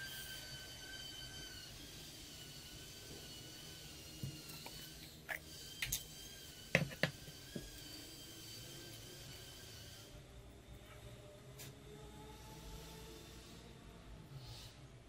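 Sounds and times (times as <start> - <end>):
faint high whine: 0.0 - 14.9.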